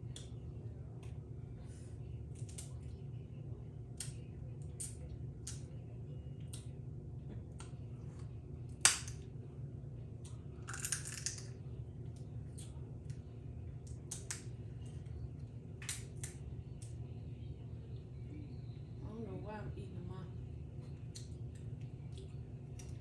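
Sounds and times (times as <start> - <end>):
steady low hum: 0.0 - 23.0
crab shells cracking by hand: 8.7 - 9.2, 10.2 - 11.5, 13.8 - 14.5, 15.8 - 17.0.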